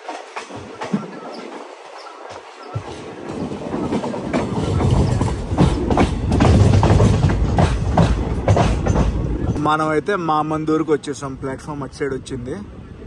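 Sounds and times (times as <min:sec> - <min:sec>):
clickety-clack of rail joints: 0:00.0 - 0:10.0
train wheels rumbling on rails: 0:00.0 - 0:12.9.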